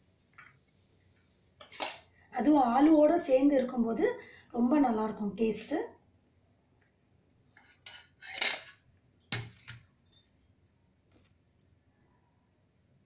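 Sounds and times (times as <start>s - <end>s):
metal spoon scraping bowls: 1.6s - 2.1s, 7.5s - 8.8s.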